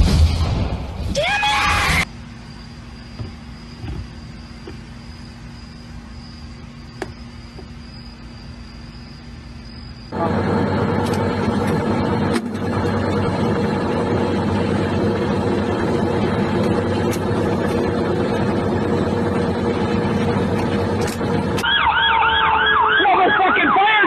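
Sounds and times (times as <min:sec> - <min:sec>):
rapidly warbling siren: 0:01.9 - 0:24.0
vehicle engine running: 0:02.1 - 0:21.6.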